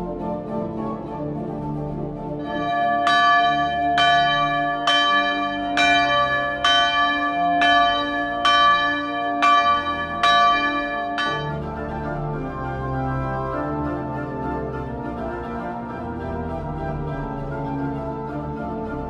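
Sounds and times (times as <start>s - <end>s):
quiet music: 0.0s - 19.0s
church bell ringing: 2.4s - 13.9s.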